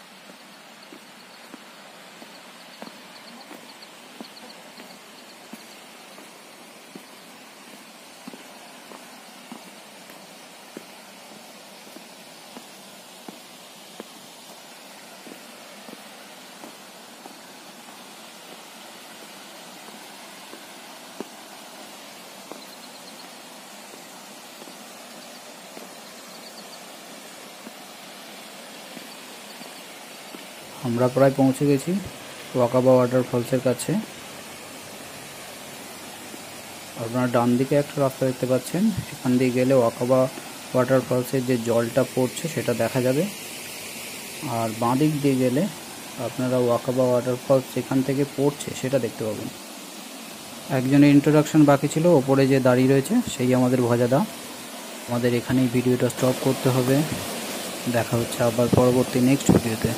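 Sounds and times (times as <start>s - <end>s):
faint high insect chirping: 0.0s - 52.0s
forest hiss: 0.0s - 59.9s
footsteps on stone path: 0.2s - 26.4s, 27.0s - 30.7s, 40.3s - 40.7s, 58.6s - 59.8s
faint high chirps: 2.2s - 6.3s.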